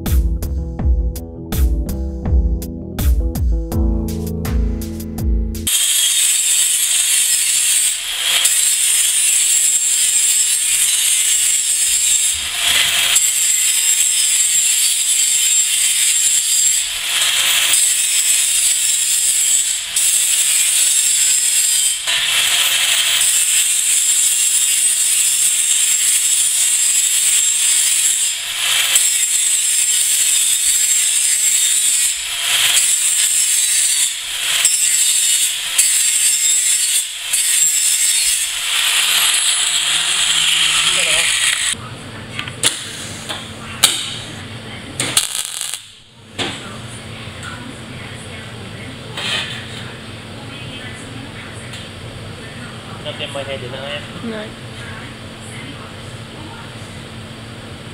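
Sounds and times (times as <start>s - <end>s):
angle grinder grinding steel: 5.6s - 41.8s, 45.2s - 46.0s.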